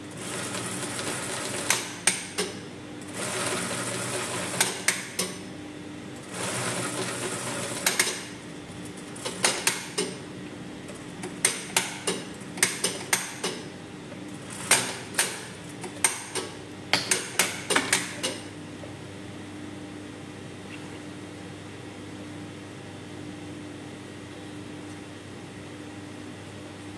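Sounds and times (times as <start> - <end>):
sewing machine stitching: 3.1 - 4.9, 6.3 - 8.2
sharp mechanical clicks and knocks: 7.8 - 8.2, 9.2 - 10.2, 11.2 - 13.6, 14.6 - 18.5.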